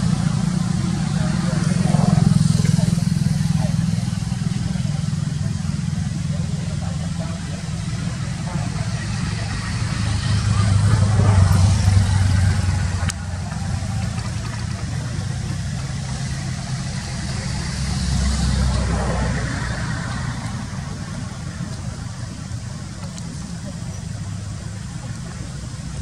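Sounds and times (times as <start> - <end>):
motor traffic rumble: 0.0 - 26.0.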